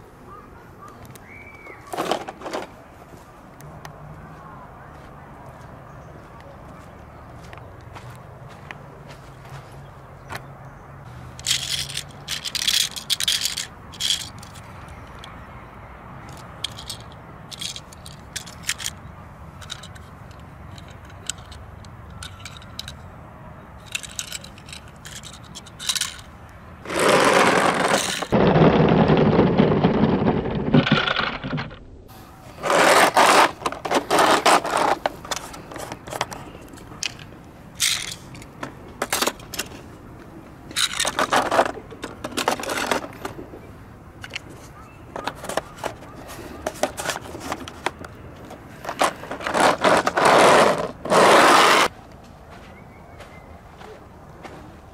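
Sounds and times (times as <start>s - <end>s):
toy cars scraping on concrete: 11.3s - 15.3s, 16.3s - 19.0s, 23.9s - 31.6s, 32.4s - 37.2s, 40.7s - 43.4s, 44.3s - 51.9s
metal toy cars clicking: 11.3s - 15.4s, 16.2s - 23.1s, 23.8s - 31.8s, 32.6s - 39.9s, 40.7s - 43.5s, 44.2s - 51.9s.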